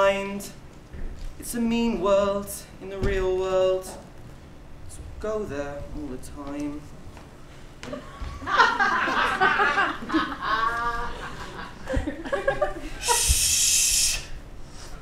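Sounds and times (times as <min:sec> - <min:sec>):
laughter: 0:07.8 - 0:13.3
loud hissing: 0:13.0 - 0:14.9.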